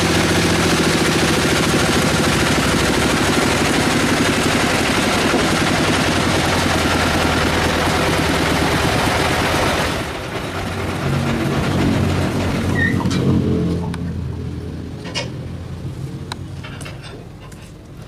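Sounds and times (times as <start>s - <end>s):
band saw cutting log: 0.0s - 13.8s.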